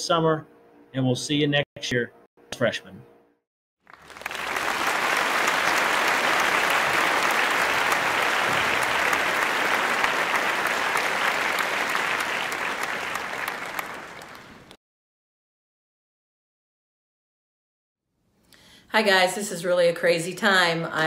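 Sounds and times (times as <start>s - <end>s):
crowd applause: 3.9s - 14.8s.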